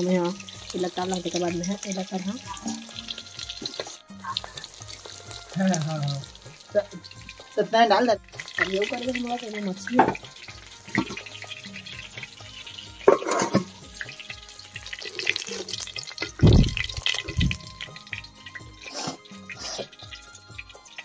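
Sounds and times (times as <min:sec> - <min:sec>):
background music with steady beat: 0:00.0 - 0:21.0
steel cookware clattering: 0:13.0 - 0:14.4.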